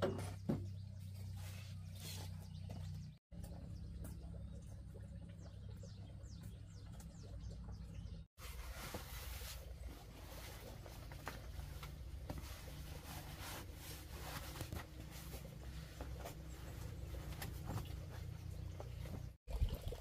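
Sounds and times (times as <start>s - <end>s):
rubber boots rubbing and scuffing: 8.4s - 19.4s.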